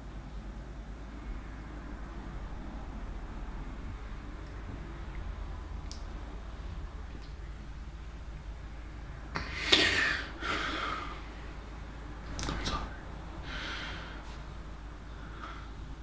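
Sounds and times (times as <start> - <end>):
low steady hum: 0.0 - 16.0
man breathing: 9.4 - 16.0.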